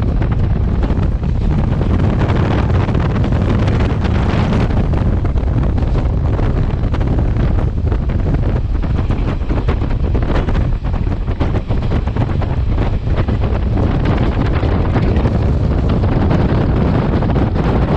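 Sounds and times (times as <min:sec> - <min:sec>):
train rumbling on track: 0:00.0 - 0:17.9
wind buffeting microphone: 0:00.0 - 0:17.9.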